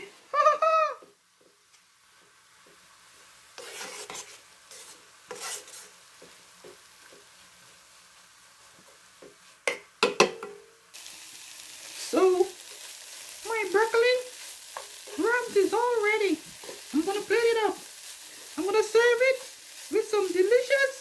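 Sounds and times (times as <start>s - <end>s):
faint sizzle: 0.0s - 21.0s
spatula scraping in a pan: 1.4s - 9.7s, 11.0s - 21.0s
spatula knocking against pan: 9.2s - 10.6s.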